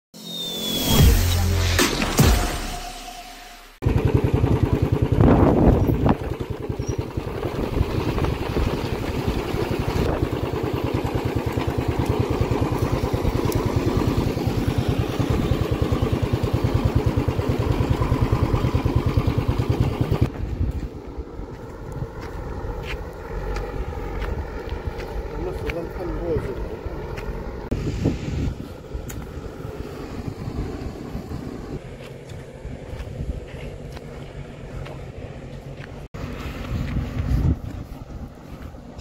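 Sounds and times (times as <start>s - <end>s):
engine throbbing: 0.2s - 39.0s
loud bump: 0.9s - 3.8s.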